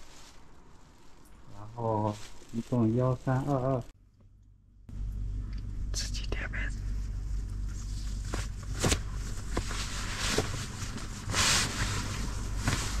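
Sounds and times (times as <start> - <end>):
duvet rustling and swishing: 0.0 - 3.6, 7.0 - 13.0
steady low hum: 0.0 - 13.0.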